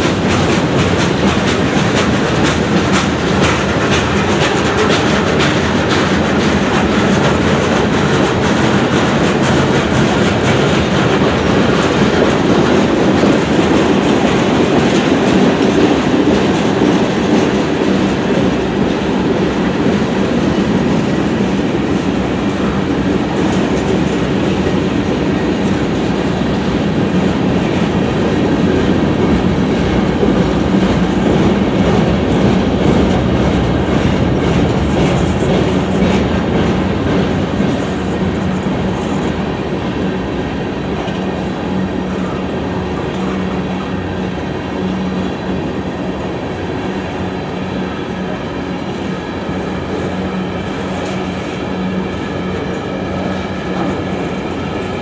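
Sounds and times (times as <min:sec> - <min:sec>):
wheels clattering over track: 0:00.0 - 0:39.3
freight train wheels rumbling: 0:00.0 - 0:55.0.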